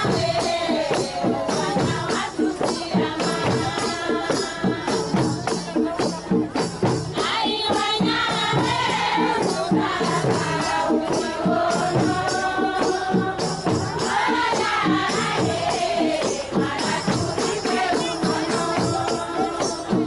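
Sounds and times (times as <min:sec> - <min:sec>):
singing over percussion beat: 0:00.0 - 0:20.0.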